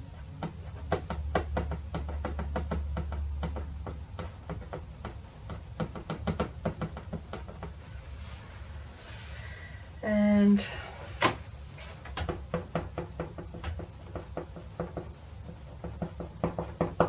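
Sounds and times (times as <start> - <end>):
pastel stick tapping on paper: 0.4 - 7.8, 12.2 - 17.0.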